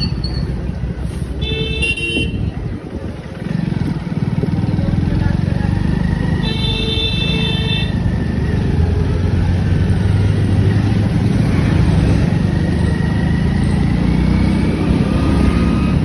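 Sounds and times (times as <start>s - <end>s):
high-pitched beep: 0.0s - 0.6s
road and wind noise: 0.0s - 16.0s.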